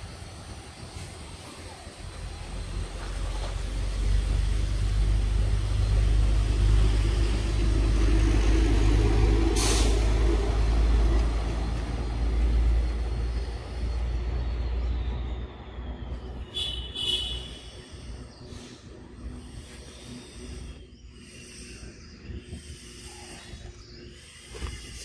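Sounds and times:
sharp hiss of air: 0.0s - 12.7s, 16.5s - 23.6s
heavy vehicle engine rumble: 0.0s - 25.0s.

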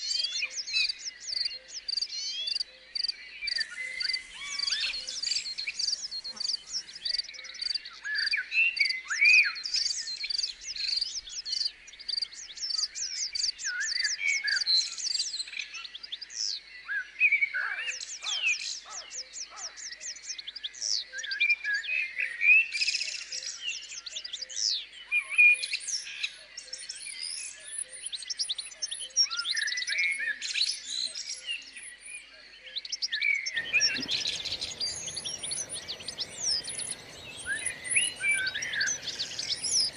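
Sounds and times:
songbirds chirping and trilling: 0.0s - 8.0s, 33.2s - 39.9s
low rushing noise: 33.6s - 39.9s.

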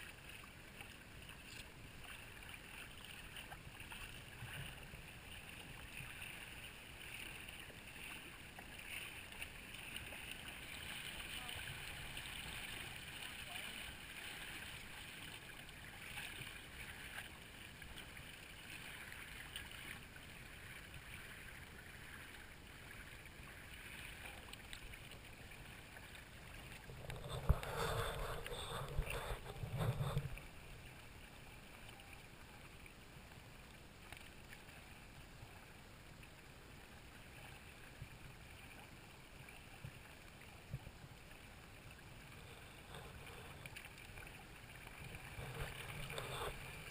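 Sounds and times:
water washing past hull: 0.0s - 32.1s
wind: 0.0s - 46.9s.

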